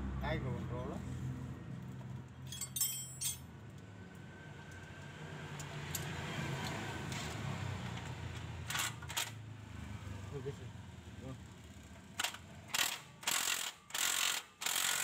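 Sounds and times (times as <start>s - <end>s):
metallic tool clinks: 2.5s - 3.5s.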